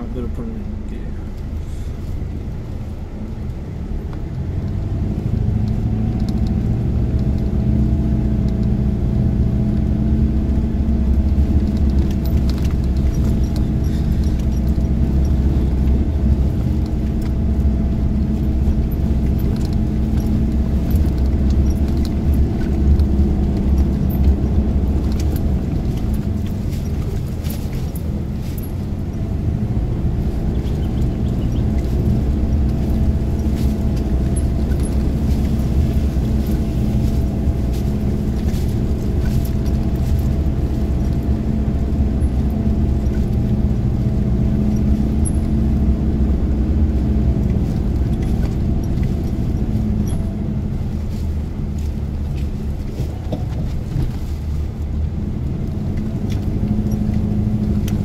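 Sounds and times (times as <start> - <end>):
car engine running: 0.0 - 58.0
clicks and rattles: 5.6 - 7.6, 11.1 - 29.3.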